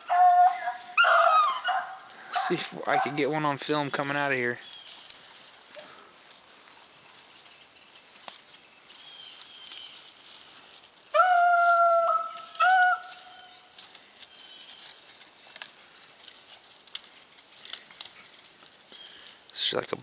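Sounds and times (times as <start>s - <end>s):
dog baying: 0.0s - 3.2s.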